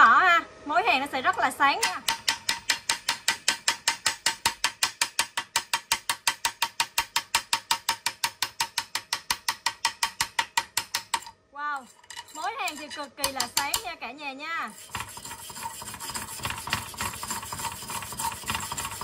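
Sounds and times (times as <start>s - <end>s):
chipping hammer tapping weld: 1.8s - 11.3s, 12.7s - 13.9s, 14.8s - 19.0s.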